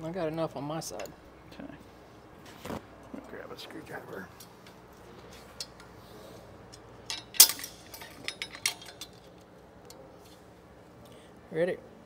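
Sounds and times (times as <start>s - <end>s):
steel tools clinking: 6.7s - 9.6s.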